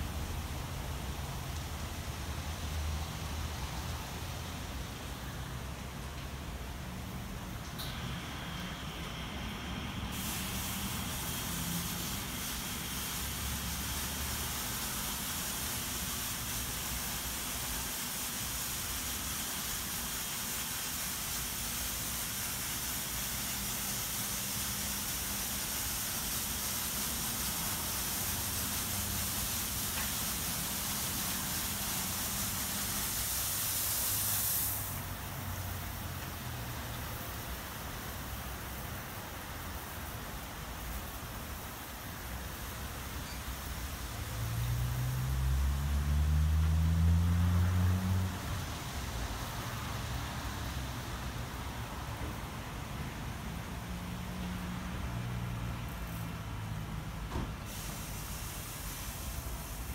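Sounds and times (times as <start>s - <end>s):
water spray hissing: 7.4s - 51.4s, 57.7s - 59.9s.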